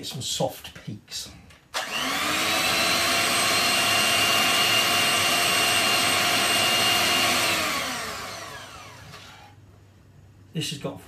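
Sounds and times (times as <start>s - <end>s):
electric hand mixer whining: 1.8s - 9.6s.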